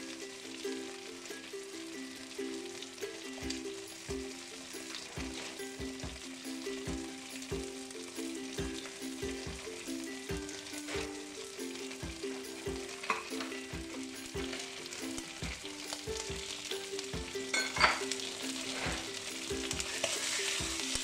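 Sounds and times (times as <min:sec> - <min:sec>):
background music with a beat: 0:00.0 - 0:21.0
food sizzling in a wok: 0:00.0 - 0:21.0.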